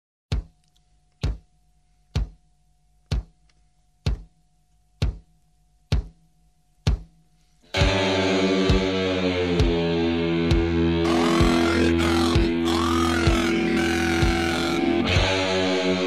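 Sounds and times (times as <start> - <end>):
drum beat: 0.3 - 0.6, 1.2 - 1.5, 2.1 - 2.4, 3.1 - 3.4, 4.0 - 7.2, 7.8 - 15.5
loud music track: 7.8 - 16.0
low held note: 11.0 - 15.1.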